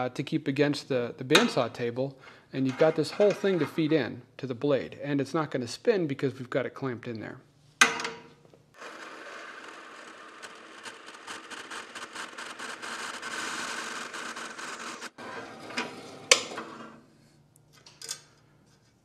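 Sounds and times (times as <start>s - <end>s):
bandsaw cutting metal bolt: 14.1s - 16.9s.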